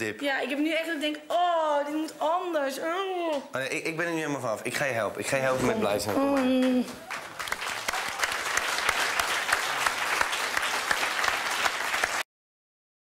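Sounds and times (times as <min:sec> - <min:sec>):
audience applauding: 0:05.8 - 0:12.3.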